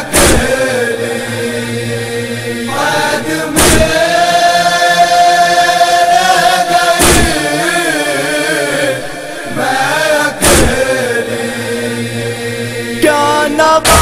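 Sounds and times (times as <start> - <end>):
loud percussive beats: 0.0 - 0.9, 3.5 - 4.4, 7.0 - 7.6, 10.3 - 11.1
voices chanting a lament: 0.0 - 14.0.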